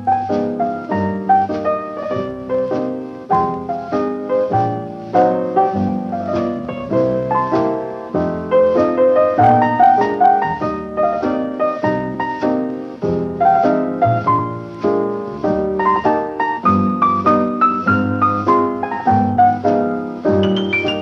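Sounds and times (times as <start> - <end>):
piano music: 0.0 - 21.0.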